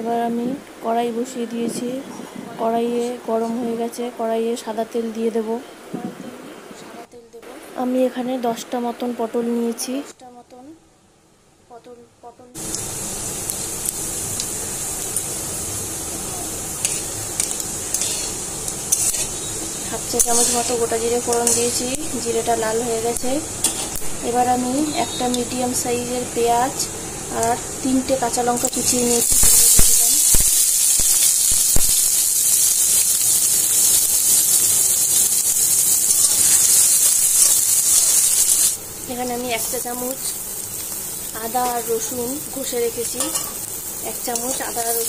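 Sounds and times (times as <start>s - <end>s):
seeds sizzling in hot oil: 12.6s - 45.0s.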